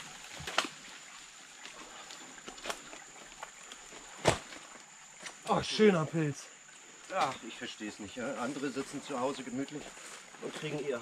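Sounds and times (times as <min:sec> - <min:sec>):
branches cracking: 0:00.0 - 0:05.4
twigs snapping: 0:00.2 - 0:00.9.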